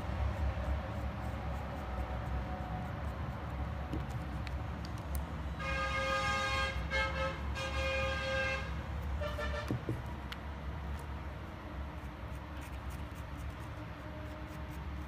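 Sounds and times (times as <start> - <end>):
horn blasts: 5.6 - 9.9.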